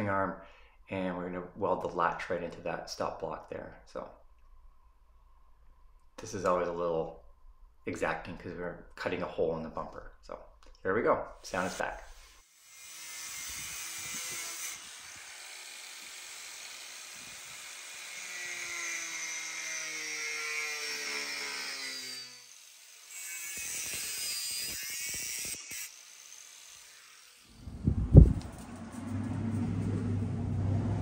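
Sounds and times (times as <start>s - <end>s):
angle grinder cutting steel: 11.5s - 27.7s.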